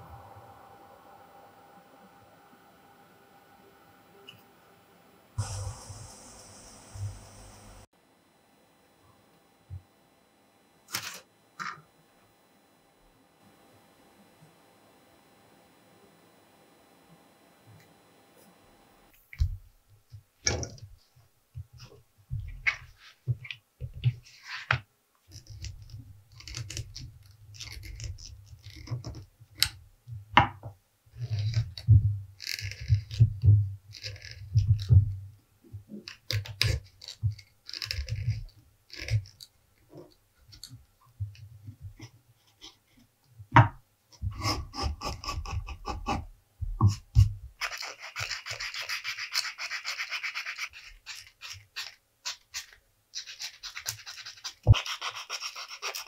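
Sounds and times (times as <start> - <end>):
sandpaper scratching leather edge: 46.9 - 56.0.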